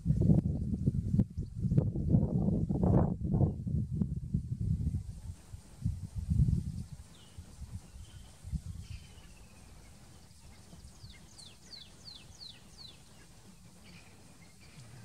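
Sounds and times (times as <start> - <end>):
bird calling: 7.1 - 15.0.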